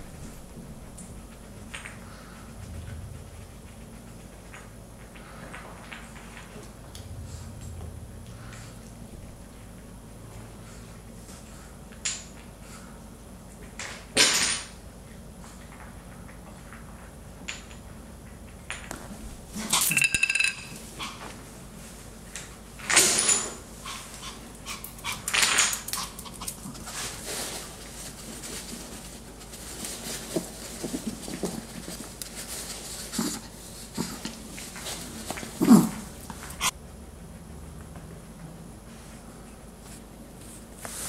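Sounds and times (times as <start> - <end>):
wooden blocks clattering on floor: 19.7 - 20.8.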